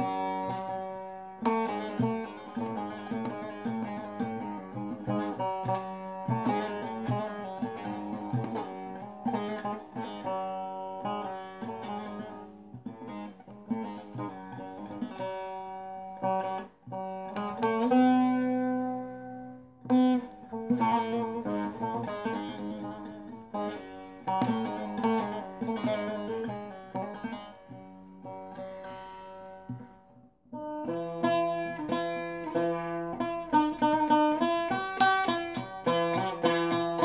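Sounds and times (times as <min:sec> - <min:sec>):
long-necked lute picked melody: 0:00.0 - 0:37.0.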